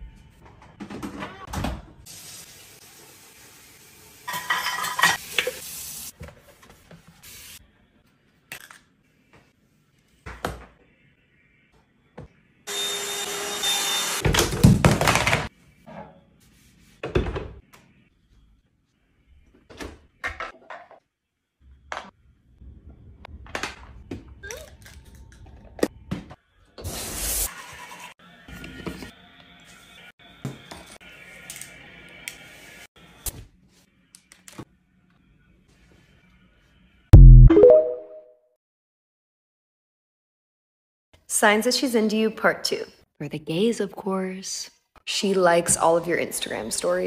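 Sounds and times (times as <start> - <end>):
dishes clattering: 4.3 - 5.2.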